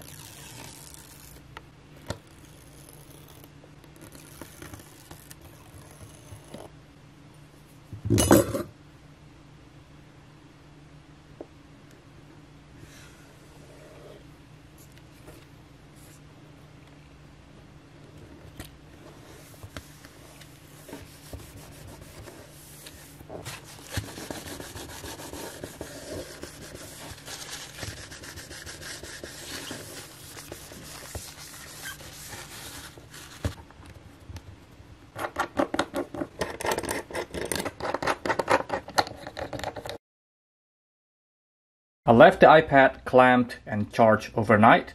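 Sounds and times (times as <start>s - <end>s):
tissue wiping glass: 19.0s - 33.5s
fingers rubbing glass screen: 20.8s - 33.0s.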